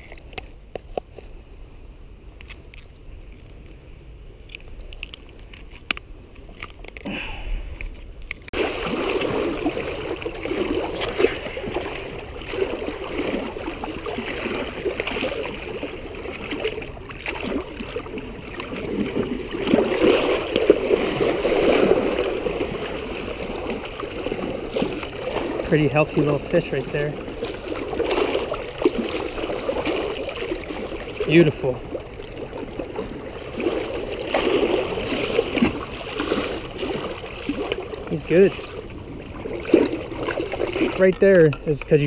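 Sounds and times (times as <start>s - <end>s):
waves splashing against rocks: 8.4s - 42.0s.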